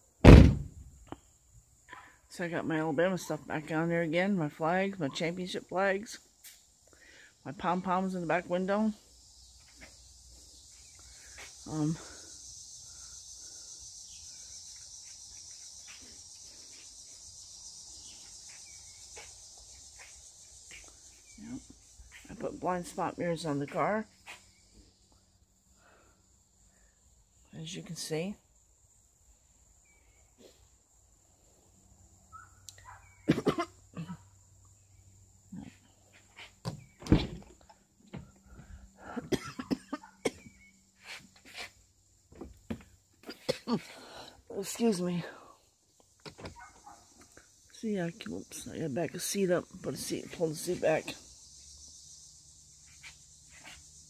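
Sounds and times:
insect chorus drone: 0.0s - 54.0s
thump: 0.2s - 0.9s, 36.6s - 37.5s
man coughing: 33.3s - 34.1s, 39.2s - 40.4s.

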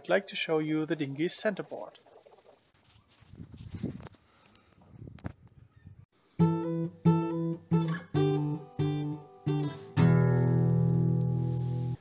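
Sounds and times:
guitar chords strummed: 6.4s - 12.0s.

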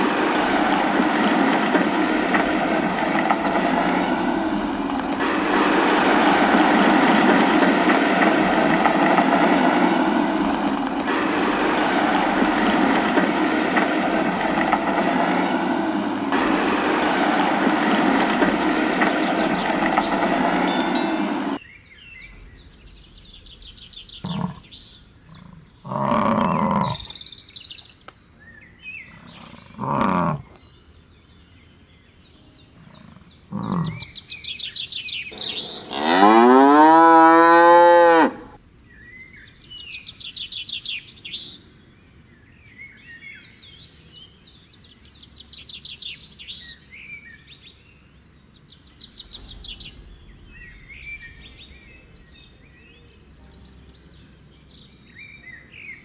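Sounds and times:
birds chirping: 0.0s - 56.0s
cow mooing: 25.3s - 27.1s, 29.1s - 30.5s, 32.9s - 34.0s, 35.7s - 38.6s.

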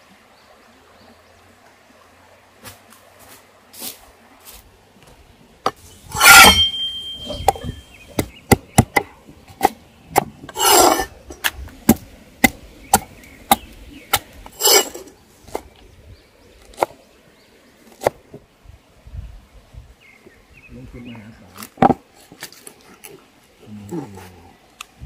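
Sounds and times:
blade scraping board: 6.0s - 7.9s, 10.5s - 11.1s, 14.6s - 15.1s
cleaver chopping on wooden board: 6.2s - 11.0s.

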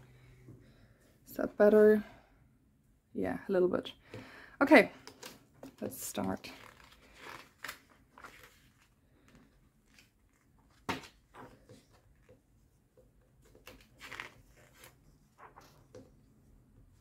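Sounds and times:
magazine pages turning: 6.4s - 12.4s, 13.4s - 16.1s.

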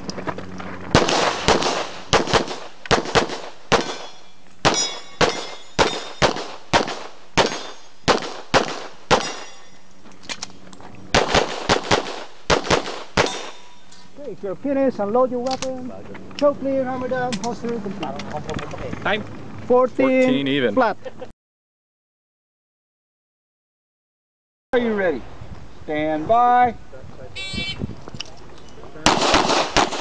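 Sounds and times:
rapid pistol fire: 1.0s - 9.5s, 11.1s - 13.6s, 29.0s - 30.0s
bullets ringing on steel targets: 3.8s - 6.5s, 7.4s - 8.0s, 9.1s - 9.9s, 13.2s - 14.0s.

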